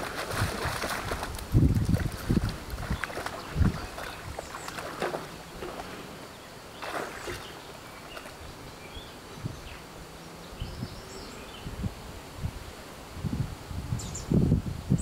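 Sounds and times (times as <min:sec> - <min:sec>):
muddy water sloshing and splashing: 0:00.0 - 0:08.5.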